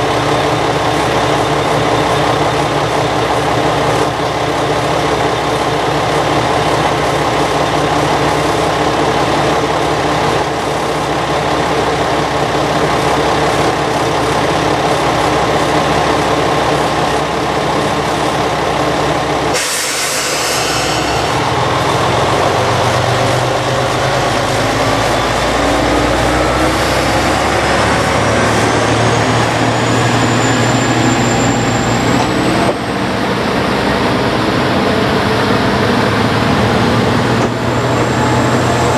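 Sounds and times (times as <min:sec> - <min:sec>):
diesel engine idling: 0:00.0 - 0:38.9
air brake hiss: 0:19.5 - 0:21.9
rising whine: 0:19.5 - 0:38.9.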